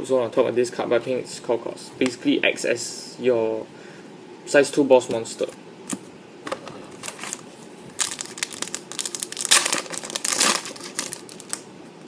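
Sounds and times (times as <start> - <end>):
foil wrapper crinkling: 7.0 - 11.6.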